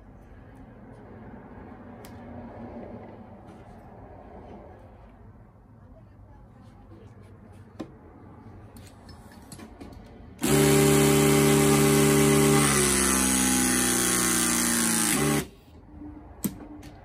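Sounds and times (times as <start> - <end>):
hydraulic crimping tool running: 10.4 - 15.6.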